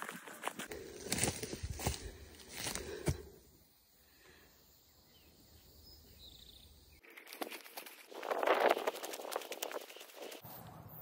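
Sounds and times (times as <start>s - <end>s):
footsteps crunching on dry brush: 0.0s - 3.4s.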